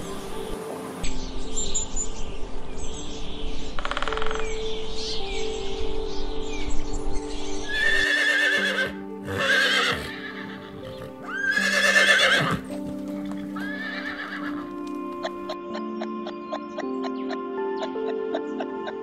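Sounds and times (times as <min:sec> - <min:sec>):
background music: 0:00.0 - 0:19.0
horse neighing: 0:07.7 - 0:12.9, 0:13.6 - 0:14.6.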